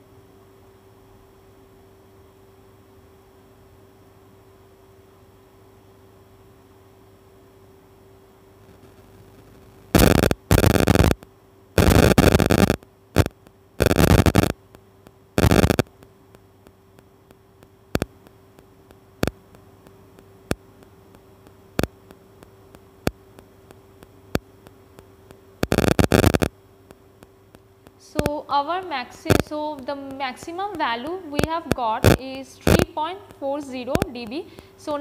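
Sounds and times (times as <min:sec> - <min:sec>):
electrical hum: 0:00.0 - 0:35.0
faint regular clicks: 0:10.0 - 0:28.3.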